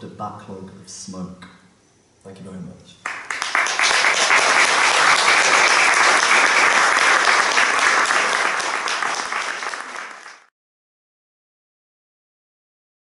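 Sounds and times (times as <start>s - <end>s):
audience applauding: 3.0s - 10.5s.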